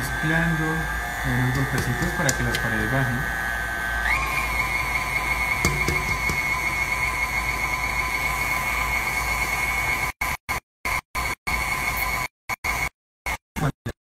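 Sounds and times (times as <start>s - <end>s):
stand mixer motor whining: 0.0s - 10.0s.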